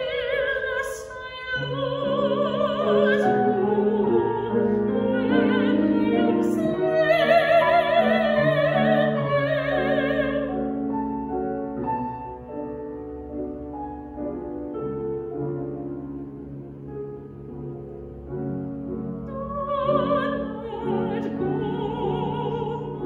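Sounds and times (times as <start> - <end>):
woman singing classical style: 0.0 - 12.4, 18.6 - 23.0
grand piano: 0.0 - 23.0.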